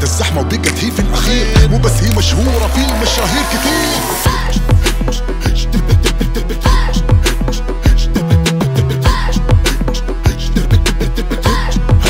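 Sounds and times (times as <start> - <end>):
deep sliding bass: 0.9 - 12.0
hip-hop drum hits: 1.1 - 9.8.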